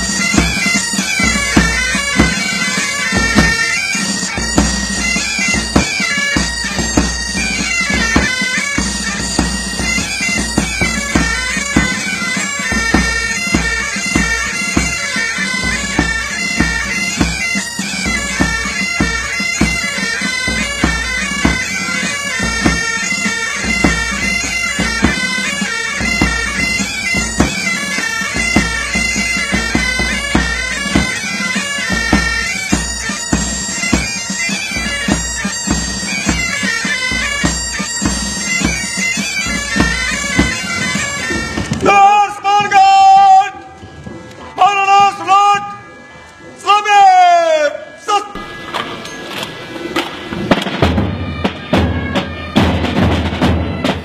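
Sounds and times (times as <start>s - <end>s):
drumbeat: 0.0s - 15.0s, 22.4s - 22.9s, 23.7s - 25.3s, 26.0s - 34.2s, 34.8s - 43.1s, 50.4s - 54.0s
bagpipes playing melody: 0.0s - 47.0s, 47.8s - 54.0s.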